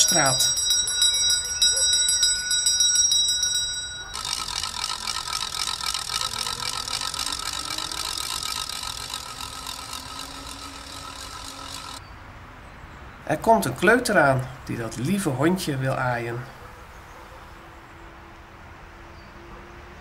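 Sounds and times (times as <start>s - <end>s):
bell ringing: 0.0s - 5.5s
ratchet rattle clattering: 0.0s - 12.0s.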